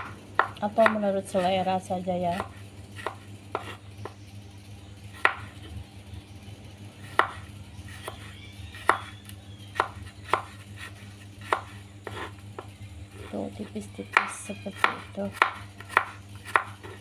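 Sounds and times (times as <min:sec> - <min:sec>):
knife chopping on cutting board: 0:00.0 - 0:01.0, 0:02.3 - 0:04.2, 0:05.2 - 0:05.5, 0:07.1 - 0:09.1, 0:09.7 - 0:13.3, 0:14.1 - 0:17.0.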